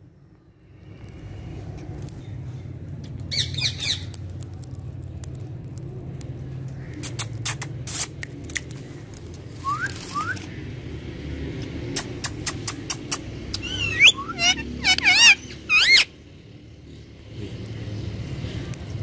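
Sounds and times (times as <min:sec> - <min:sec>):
parakeet squawking: 0:12.0 - 0:16.1
bird chirps rising: 0:13.5 - 0:16.1.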